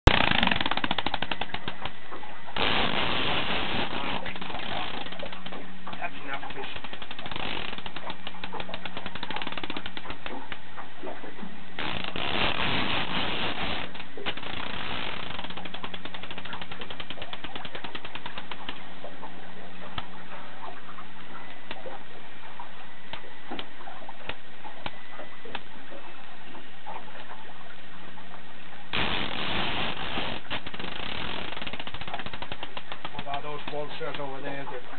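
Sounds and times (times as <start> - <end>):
low steady hum: 0.0 - 34.9
fishing reel clicking rapidly: 0.1 - 1.9, 6.8 - 10.2, 11.8 - 18.7, 29.1 - 34.2.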